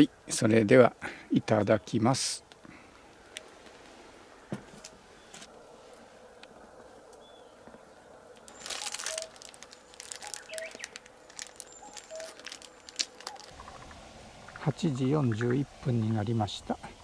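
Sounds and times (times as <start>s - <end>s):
faint bird chirps: 6.9s - 12.4s
aluminium foil crinkling: 8.4s - 13.6s.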